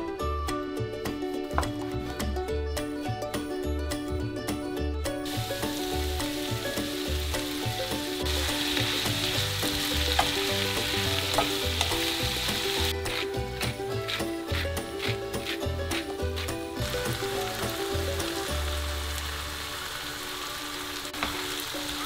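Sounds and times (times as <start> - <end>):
light background music: 0.0 - 22.0
vegetables sizzling in frying pan: 5.2 - 22.0
wooden spatula stirring: 12.8 - 17.0.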